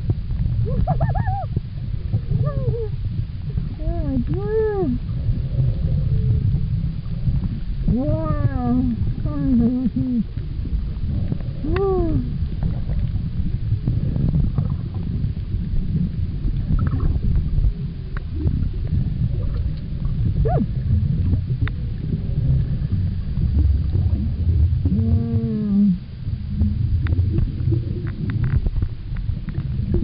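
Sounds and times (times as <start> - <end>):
low underwater rumble: 0.0 - 30.0
whale song moaning calls: 0.6 - 3.0, 20.4 - 20.8, 24.8 - 26.2.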